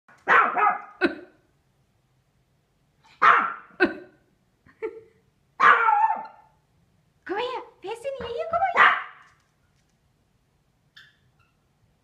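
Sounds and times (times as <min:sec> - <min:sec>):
small dog barking: 0:00.2 - 0:01.0, 0:03.2 - 0:03.7, 0:05.6 - 0:06.5, 0:08.7 - 0:09.3.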